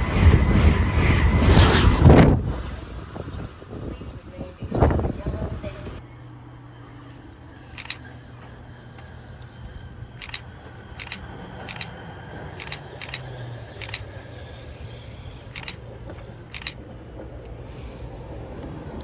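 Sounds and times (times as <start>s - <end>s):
truck low steady hum: 6.0s - 19.0s
sharp clicks: 7.7s - 8.0s, 10.2s - 12.0s, 12.6s - 14.0s, 15.5s - 15.8s, 16.5s - 16.8s.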